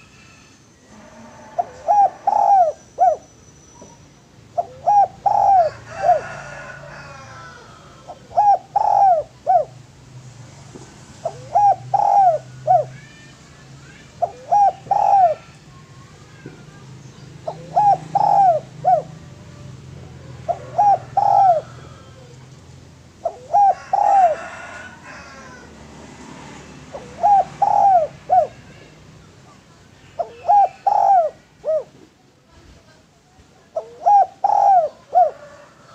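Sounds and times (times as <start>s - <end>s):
dove cooing: 1.5s - 3.3s, 4.5s - 9.8s, 11.2s - 13.1s, 14.0s - 15.8s, 16.8s - 25.8s, 26.6s - 28.9s, 30.0s - 32.1s, 33.7s - 35.9s.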